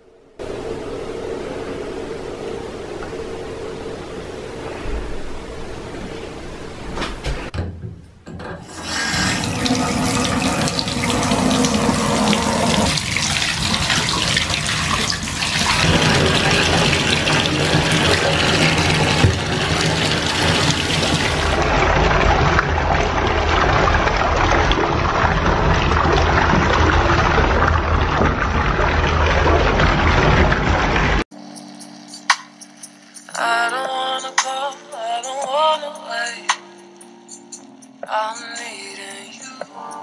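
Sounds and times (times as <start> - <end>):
faucet pouring water into tub: 8.7 - 31.3.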